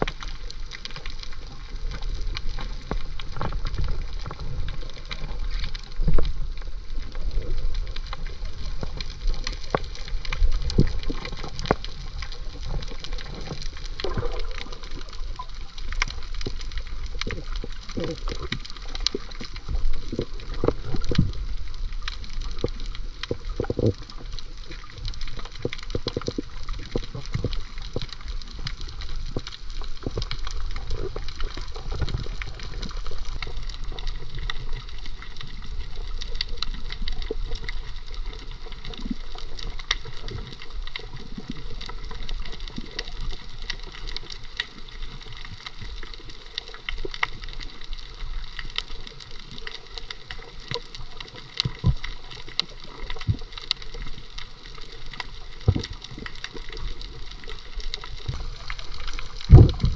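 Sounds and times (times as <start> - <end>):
crackle of tiny clicks: 0.0 - 59.9
underwater sloshing and gurgling: 0.0 - 59.9
low underwater thumps: 59.4 - 59.9.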